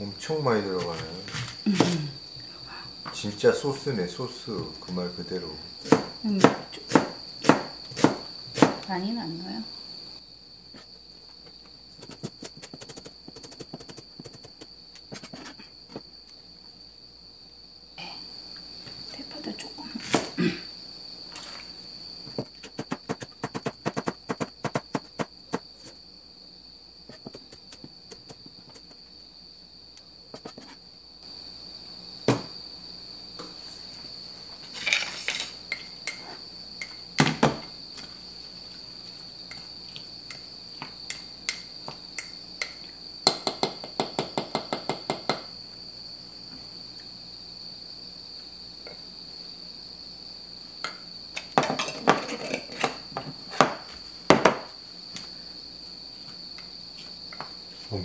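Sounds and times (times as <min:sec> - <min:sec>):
knife chopping on cutting board: 0:05.8 - 0:08.8.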